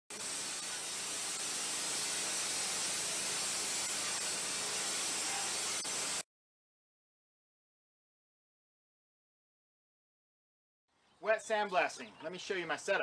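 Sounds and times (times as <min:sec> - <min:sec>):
sand and water jet blasting metal: 0:00.1 - 0:06.2.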